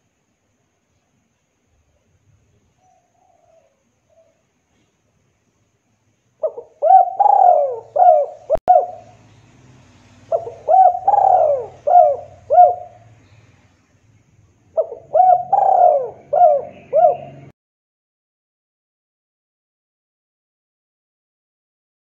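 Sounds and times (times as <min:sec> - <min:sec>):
dove cooing: 0:06.4 - 0:09.2, 0:10.3 - 0:13.2, 0:14.8 - 0:17.5.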